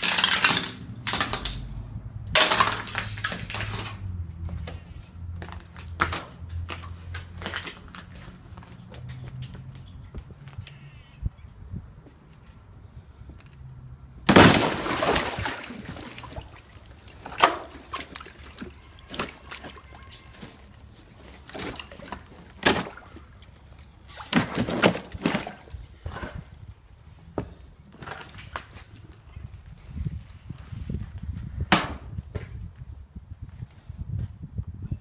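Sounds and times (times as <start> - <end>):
ice cracking and crunching: 0.0 - 1.6, 2.3 - 4.0, 14.3 - 16.3
ice crashing and splashing: 0.0 - 1.6, 2.3 - 4.0, 14.3 - 20.6.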